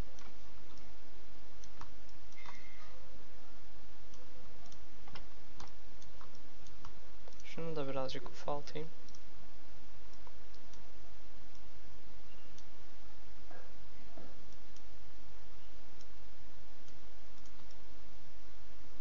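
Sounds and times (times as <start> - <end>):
low hum: 0.0 - 19.0
microphone hiss: 0.0 - 19.0
computer mouse clicks: 1.6 - 2.9, 4.1 - 7.5, 16.8 - 17.8.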